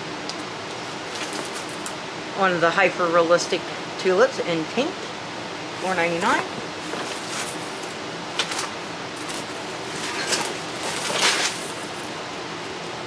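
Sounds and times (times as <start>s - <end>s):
plastic leaves rustling: 5.8s - 12.2s.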